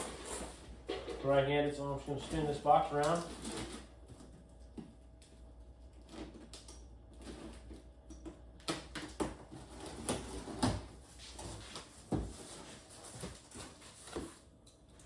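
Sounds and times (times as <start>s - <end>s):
cardboard scraping and rustling: 0.0s - 1.4s.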